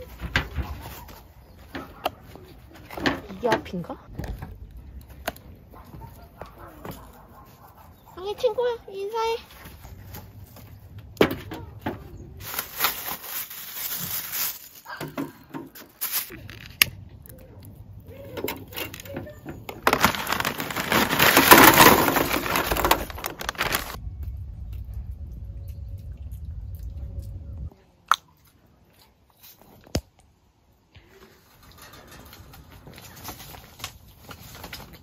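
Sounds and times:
metal brazier knocking and scraping: 0:18.4 - 0:24.0, 0:31.6 - 0:35.0.

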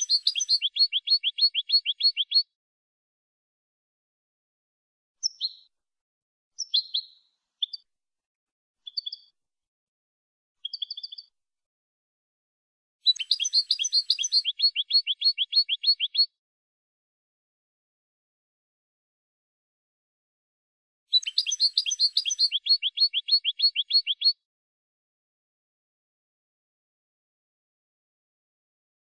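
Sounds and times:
goldfinch singing: 0:00.0 - 0:02.4, 0:13.1 - 0:16.3, 0:21.1 - 0:24.4.

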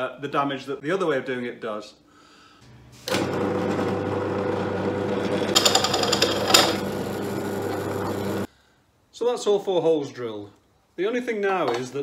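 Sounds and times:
drill press motor humming: 0:03.1 - 0:08.5.

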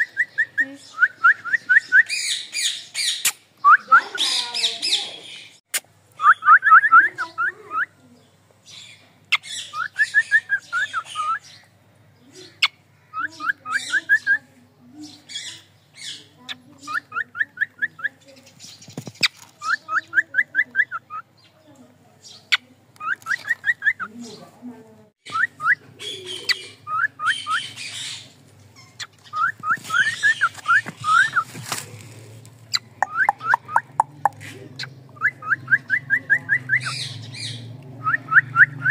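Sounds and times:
harsh scratchy bird calls: 0:00.0 - 0:07.6, 0:08.6 - 0:14.4, 0:15.0 - 0:21.6, 0:22.2 - 0:24.5, 0:25.2 - 0:35.9, 0:36.5 - 0:37.7
cockatiel chirping: 0:22.5 - 0:24.1, 0:25.3 - 0:31.5.

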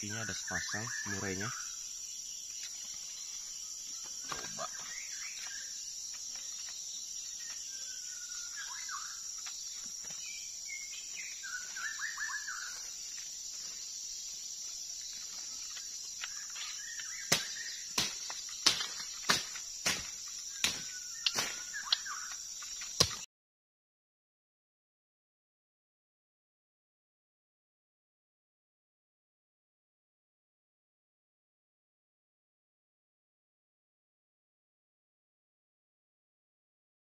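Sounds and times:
birds whistling song phrases: 0:00.0 - 0:01.8, 0:07.4 - 0:09.3, 0:10.2 - 0:12.9, 0:16.2 - 0:17.9, 0:20.5 - 0:22.4
high-pitched insect drone: 0:00.0 - 0:23.2.

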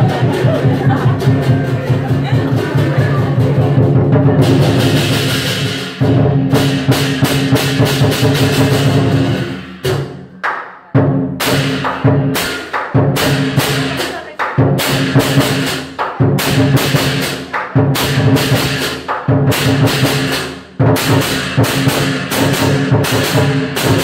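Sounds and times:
cymbals clashing: 0:00.0 - 0:10.3, 0:11.0 - 0:24.0
drum beat: 0:00.0 - 0:24.0.

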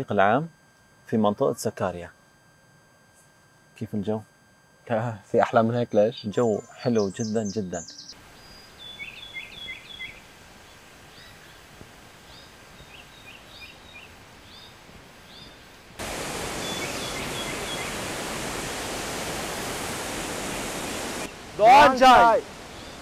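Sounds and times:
songbird chirping: 0:05.9 - 0:15.8, 0:16.4 - 0:18.3
waterfall rushing: 0:16.0 - 0:23.0.

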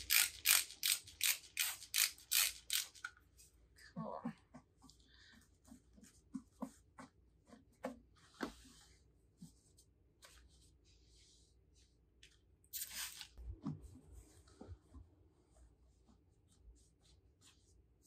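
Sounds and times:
spray bottle spritzing: 0:12.7 - 0:13.4.

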